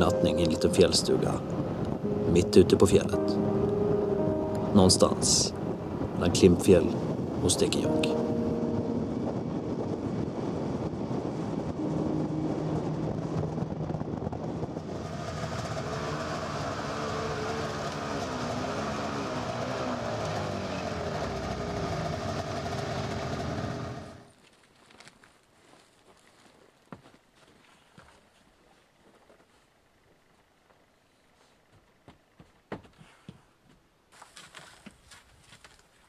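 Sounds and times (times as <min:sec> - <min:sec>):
track noise: 0:00.0 - 0:24.3
wind noise: 0:03.6 - 0:21.8
snowmobile engine running: 0:11.8 - 0:24.3.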